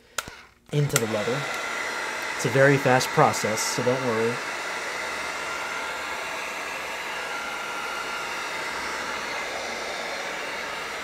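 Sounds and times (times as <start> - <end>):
heat gun blowing air: 0.0 - 11.0.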